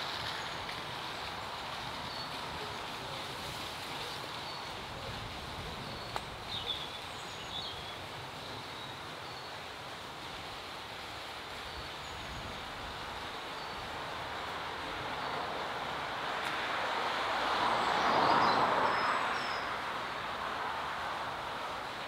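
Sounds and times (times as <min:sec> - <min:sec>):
distant traffic hum: 0:00.0 - 0:22.0.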